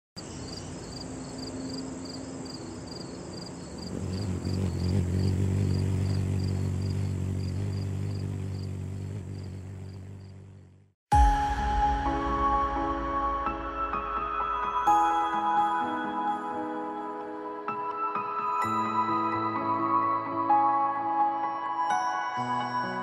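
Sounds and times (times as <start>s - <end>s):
cricket-like chirping: 0.2s - 10.8s.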